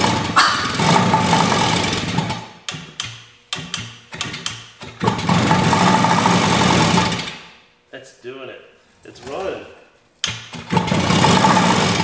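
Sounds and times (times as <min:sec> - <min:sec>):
two-stroke engine running and sputtering: 0:00.0 - 0:02.5, 0:05.0 - 0:07.3, 0:10.6 - 0:12.0.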